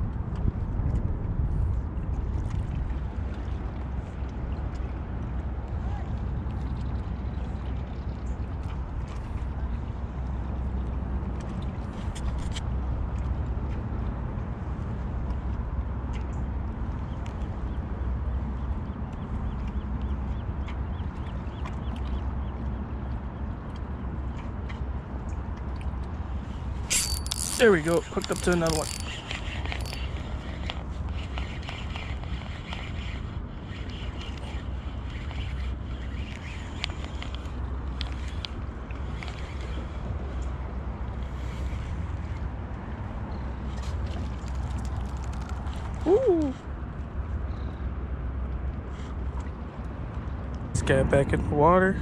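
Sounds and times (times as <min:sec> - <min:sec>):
wind buffeting microphone: 0:00.0 - 0:04.3
wind rumbling on microphone: 0:00.0 - 0:52.0
faint clicks: 0:26.9 - 0:39.8.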